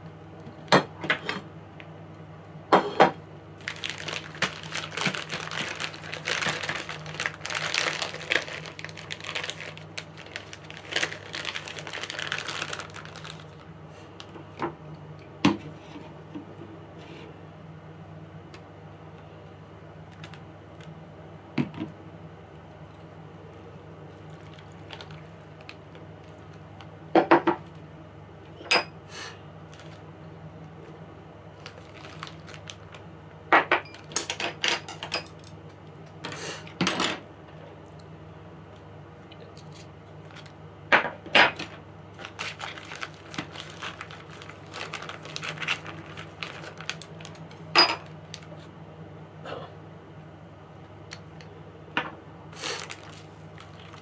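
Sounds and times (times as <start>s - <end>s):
plastic bag crackling: 3.6s - 13.7s, 24.2s - 26.6s, 29.7s - 30.0s, 31.6s - 33.0s, 42.1s - 48.5s, 52.6s - 54.0s.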